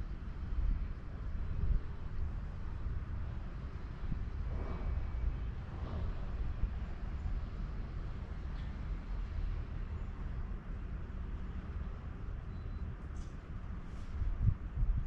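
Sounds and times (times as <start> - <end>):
low outdoor background rumble: 0.0 - 15.0.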